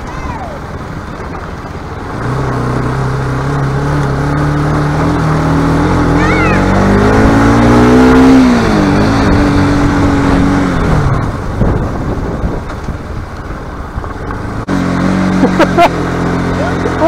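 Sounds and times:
motorcycle engine: 0:00.0 - 0:17.0
road noise: 0:00.0 - 0:17.0
wind noise: 0:06.7 - 0:14.7.

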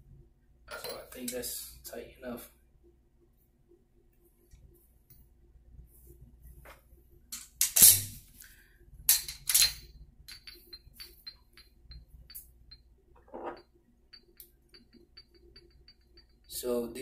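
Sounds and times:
metal parts clacking down: 0:07.4 - 0:08.1, 0:09.1 - 0:11.6
light metallic clinks: 0:09.1 - 0:16.8.

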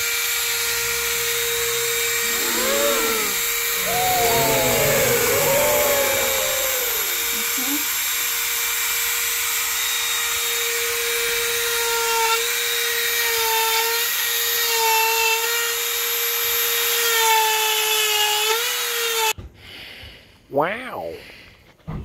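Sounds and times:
rotary tool carving wood: 0:09.4 - 0:19.3.

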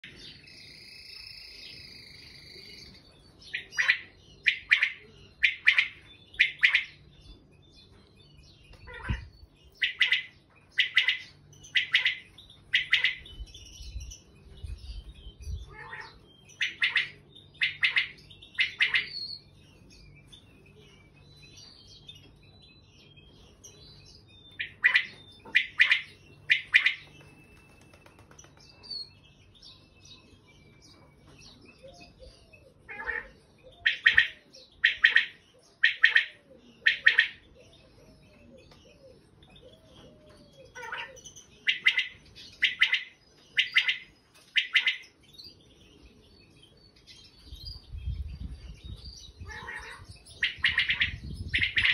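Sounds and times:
quail calling: 0:03.5 - 0:07.0, 0:08.9 - 0:13.2, 0:15.7 - 0:19.2, 0:24.6 - 0:27.1, 0:31.8 - 0:45.1, 0:49.4 - 0:51.9.

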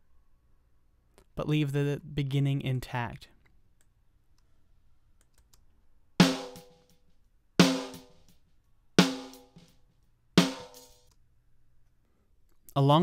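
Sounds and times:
snare drum hits: 0:10.4 - 0:11.0.

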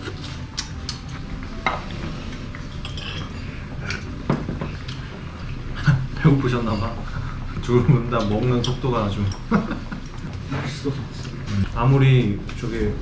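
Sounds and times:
low room hum: 0:00.0 - 0:13.0
cutlery clinking on dishes: 0:02.7 - 0:05.1.

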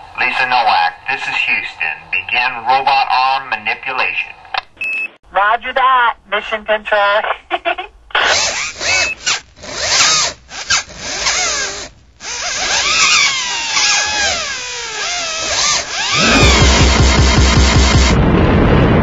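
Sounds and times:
electric motor whirring: 0:08.2 - 0:18.2.

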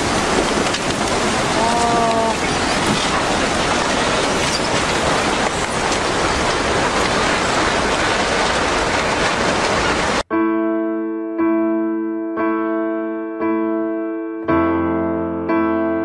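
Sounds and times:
floodwater rushing: 0:00.0 - 0:10.2.

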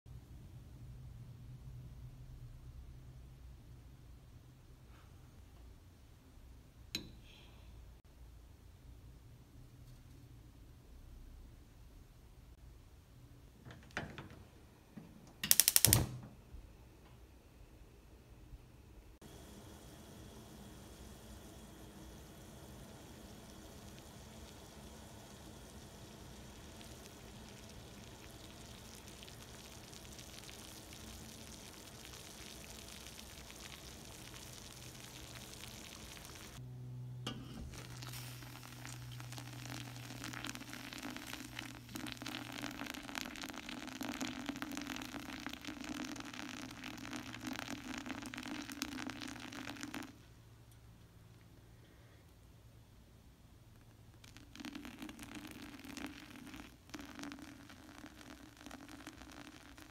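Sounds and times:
gas burner hiss: 0:15.4 - 0:16.2, 0:19.2 - 0:36.6
hot water bubbling and sizzling: 0:19.2 - 0:36.6, 0:37.3 - 0:50.2, 0:54.1 - 0:59.9.

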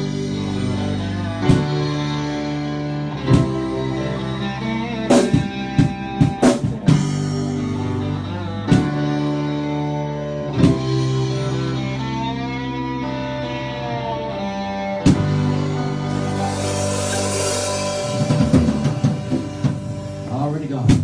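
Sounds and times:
drums: 0:00.0 - 0:21.0
electric guitars sustained notes: 0:00.0 - 0:21.0.

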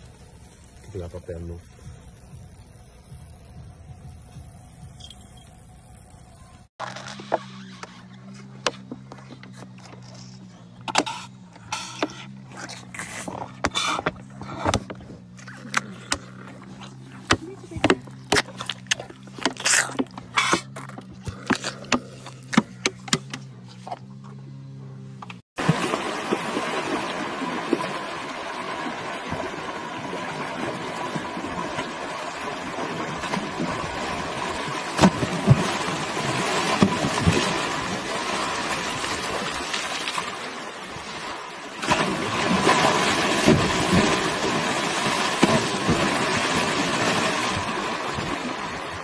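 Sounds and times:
low hum: 0:00.0 - 0:49.0
elephant splashing in water: 0:25.6 - 0:49.0.

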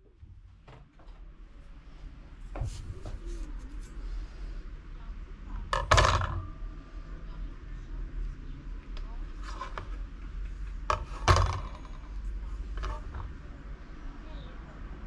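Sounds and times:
metal disc clattering on a scale: 0:05.7 - 0:06.6.

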